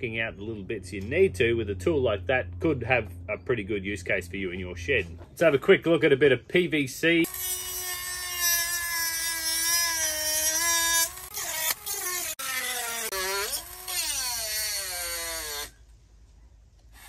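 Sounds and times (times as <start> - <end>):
rotary tool whine cutting pipe: 7.2 - 15.9.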